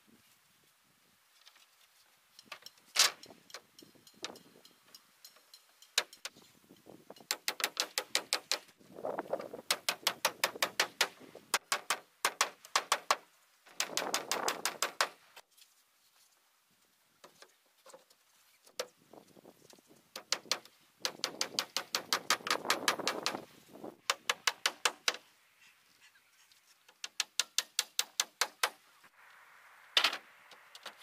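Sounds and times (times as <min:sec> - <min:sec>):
hammer driving nails into wood: 0:07.3 - 0:08.7, 0:09.7 - 0:15.2, 0:20.2 - 0:23.4, 0:24.0 - 0:25.2, 0:27.0 - 0:28.8.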